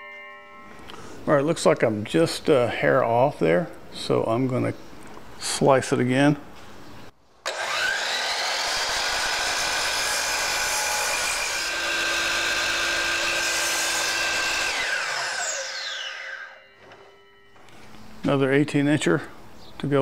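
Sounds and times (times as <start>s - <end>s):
miter saw cutting wood: 7.5s - 17.4s
saw blade winding down whine: 7.5s - 17.6s.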